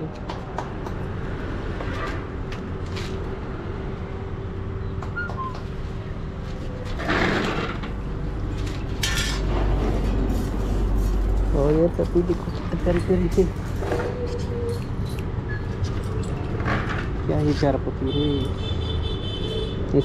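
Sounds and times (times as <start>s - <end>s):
scraping or grinding burst: 6.9s - 8.0s.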